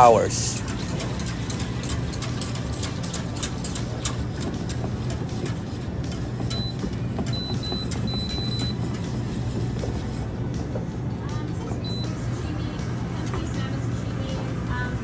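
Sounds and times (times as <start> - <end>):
wire whisk scraping a pot: 0.0 - 10.3.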